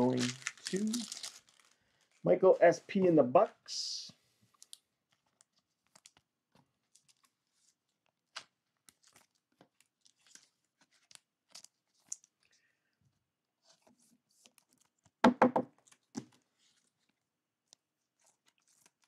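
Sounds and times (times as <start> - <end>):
trading cards rustling and clicking: 0.0 - 2.2.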